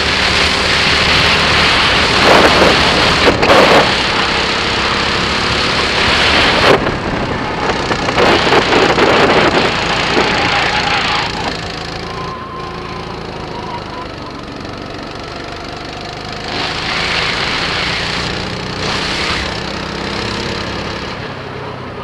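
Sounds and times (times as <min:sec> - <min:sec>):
wind rush on microphone: 0:00.0 - 0:12.1
small kart engine: 0:00.0 - 0:22.0.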